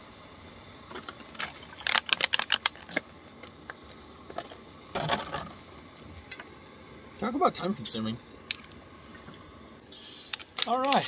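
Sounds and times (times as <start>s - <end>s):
plastic bottle crackling: 1.3s - 3.0s, 10.3s - 11.0s.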